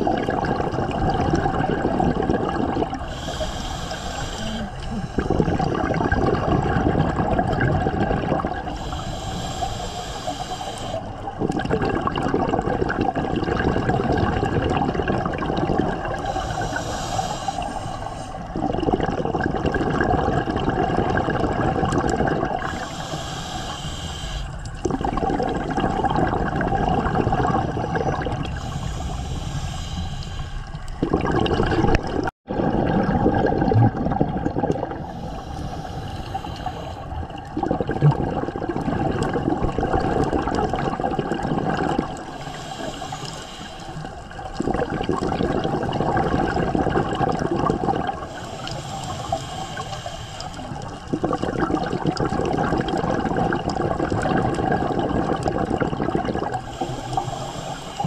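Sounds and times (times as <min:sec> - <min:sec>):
exhaled bubbles rushing: 0:00.0 - 0:03.4, 0:04.9 - 0:08.9, 0:11.0 - 0:23.2, 0:24.6 - 0:29.4, 0:30.3 - 0:49.6, 0:50.4 - 0:58.0
regulator inhale hiss: 0:03.0 - 0:05.4, 0:08.7 - 0:11.3, 0:16.2 - 0:18.5, 0:22.6 - 0:24.7, 0:28.5 - 0:30.9, 0:35.0 - 0:37.4, 0:42.2 - 0:44.5, 0:48.2 - 0:51.1, 0:56.6 - 0:58.0.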